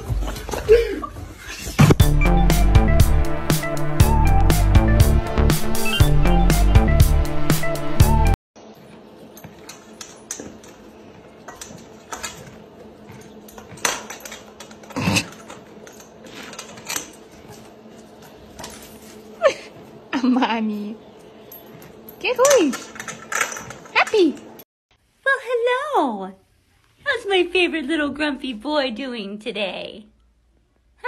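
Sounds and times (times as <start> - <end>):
background music with steady beat: 0.0 - 8.4
animals eating from metal bowl: 8.6 - 19.2.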